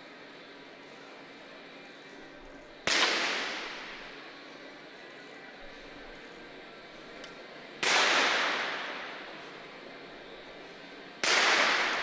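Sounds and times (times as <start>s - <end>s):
pistol shots echoing: 2.9s - 4.0s, 7.8s - 9.3s, 11.2s - 12.0s.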